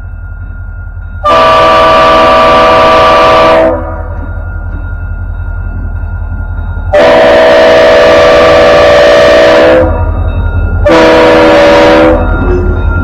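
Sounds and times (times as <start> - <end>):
locomotive air horn blasts: 1.2 - 4.1, 7.0 - 10.1, 10.8 - 12.3.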